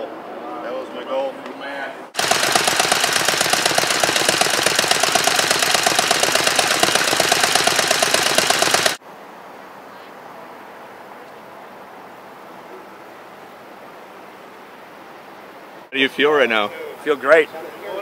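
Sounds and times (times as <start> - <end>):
motorcycle engine popping: 2.2 - 9.0.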